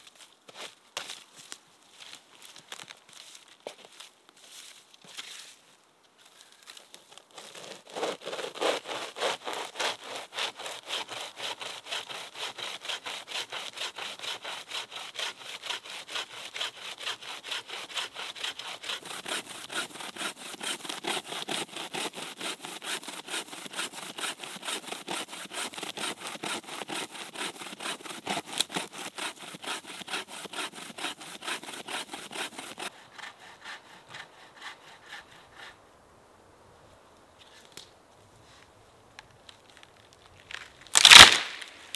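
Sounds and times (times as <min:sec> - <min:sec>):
bow saw cutting wood: 0:07.4 - 0:35.8.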